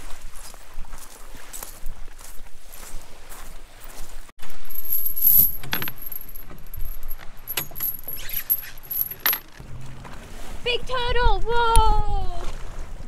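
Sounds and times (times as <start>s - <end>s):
anchor chain clinking and rattling: 4.4s - 9.6s.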